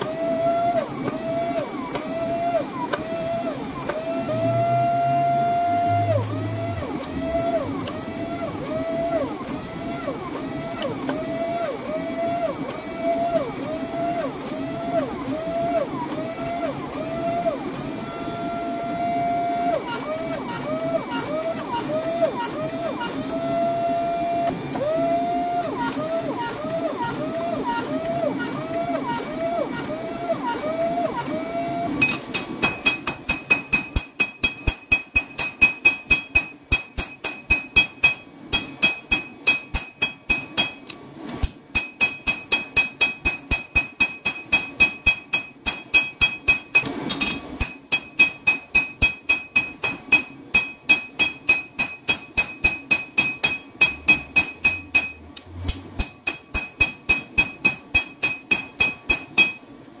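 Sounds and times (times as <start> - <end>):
hammer blows ringing on anvil: 32.6 - 40.8, 41.8 - 46.9, 47.6 - 55.2, 56.0 - 59.6.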